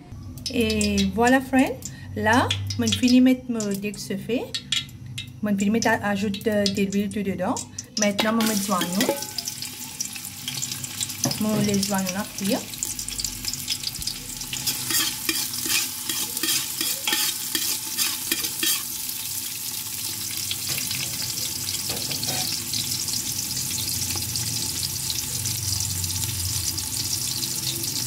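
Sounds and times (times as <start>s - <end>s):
onions sizzling in hot oil: 0.5s - 3.4s, 5.2s - 28.0s
utensil scraping a metal pot: 8.2s - 9.5s, 14.5s - 19.0s.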